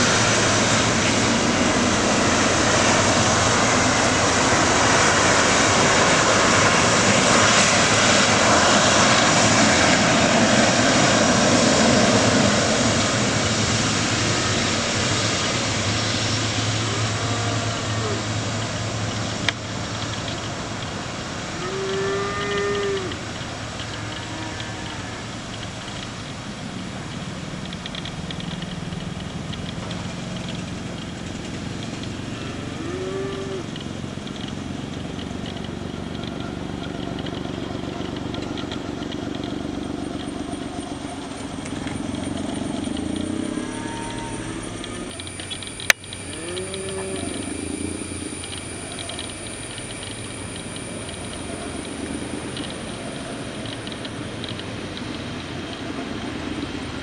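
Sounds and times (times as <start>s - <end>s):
jet engines rumbling: 0.0s - 57.0s
calls rising and falling in pitch: 21.6s - 25.7s, 32.2s - 33.8s, 39.6s - 53.6s
sharp click: 27.6s - 31.1s.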